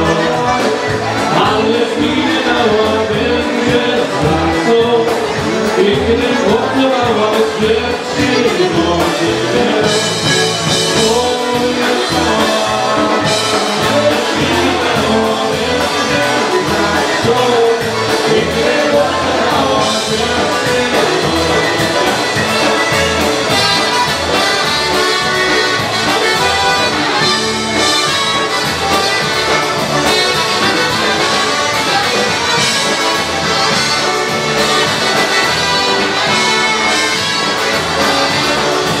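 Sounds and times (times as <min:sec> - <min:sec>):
polka band playing: 0:00.0 - 0:39.0.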